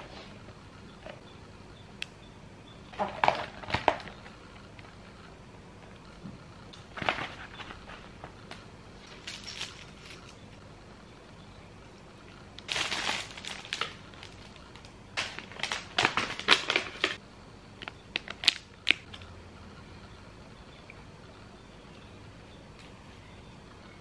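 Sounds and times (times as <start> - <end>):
packaging crinkling: 12.6 - 17.2.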